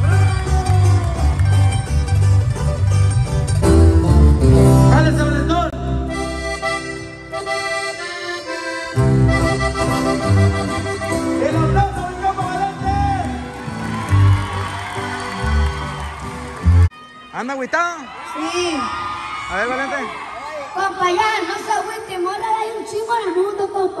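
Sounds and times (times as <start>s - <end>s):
bass: 0.0s - 16.9s
button accordion playing: 5.6s - 13.4s.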